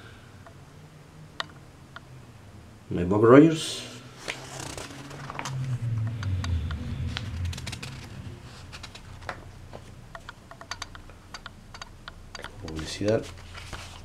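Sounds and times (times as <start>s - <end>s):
low handling rumble: 4.1s - 10.2s
paper pages rustling: 4.2s - 5.5s, 13.2s - 14.0s.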